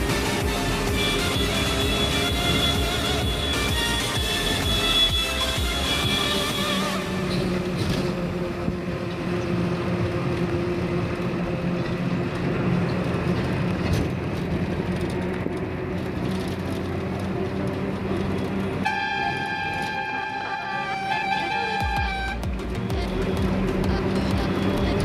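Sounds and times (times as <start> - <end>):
background music: 0.0 - 11.5, 20.0 - 25.0
bus engine hum: 0.0 - 25.0
road and wind noise: 0.0 - 25.0.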